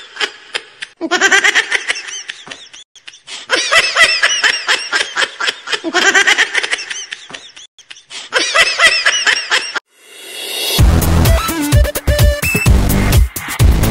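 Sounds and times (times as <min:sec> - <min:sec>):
high-pitched laughter: 0:00.0 - 0:09.8.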